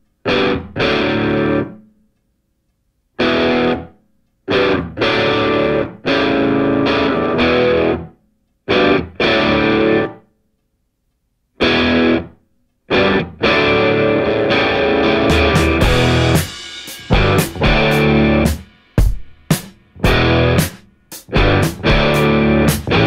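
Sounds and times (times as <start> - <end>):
distorted electric guitar chords: 0.2 - 1.8, 3.2 - 3.9, 4.5 - 10.2, 11.6 - 18.7, 19.9 - 23.0.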